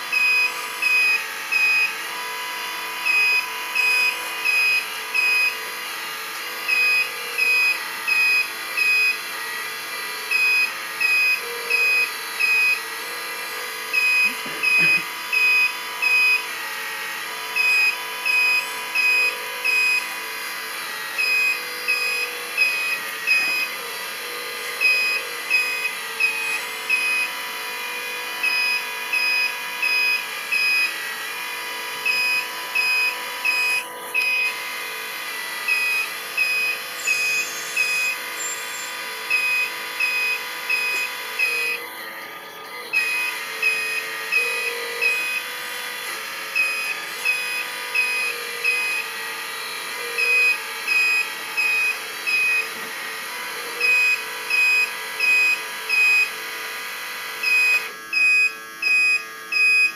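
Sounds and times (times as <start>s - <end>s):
electric motor whine: 0.0s - 59.9s
reversing warning beeper: 14.0s - 16.6s, 17.6s - 20.1s, 21.2s - 23.8s, 24.8s - 27.4s, 32.0s - 34.6s, 35.7s - 41.8s.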